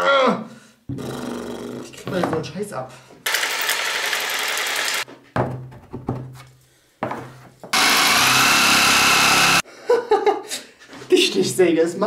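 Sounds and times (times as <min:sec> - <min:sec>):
electric jigsaw running: 0:03.3 - 0:05.0, 0:07.7 - 0:09.6.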